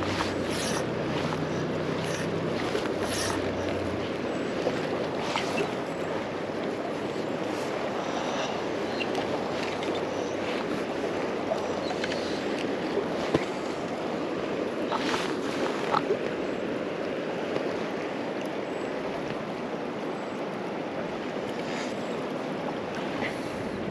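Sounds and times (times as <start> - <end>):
river water running: 0.0 - 23.9.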